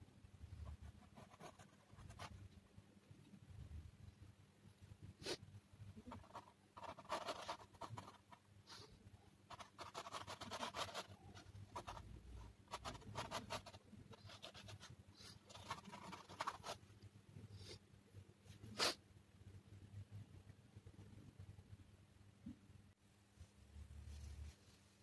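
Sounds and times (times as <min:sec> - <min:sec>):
pencil scratching on board: 0:00.7 - 0:02.4, 0:06.0 - 0:08.4, 0:09.5 - 0:12.1, 0:12.7 - 0:16.8.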